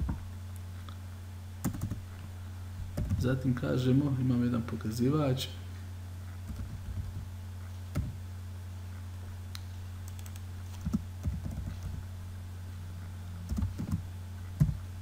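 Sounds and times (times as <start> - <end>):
steady low hum: 0.0 - 15.0
computer keyboard typing: 1.6 - 2.0, 3.0 - 3.2, 6.5 - 7.2, 10.0 - 12.0, 13.5 - 14.0.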